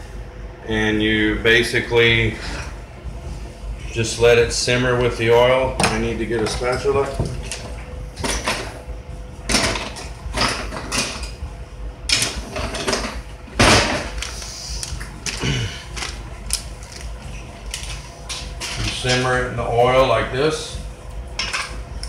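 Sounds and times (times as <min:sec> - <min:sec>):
steady low hum: 0:00.0 - 0:22.0
kitchen utensils clattering: 0:12.1 - 0:14.2, 0:21.4 - 0:21.8.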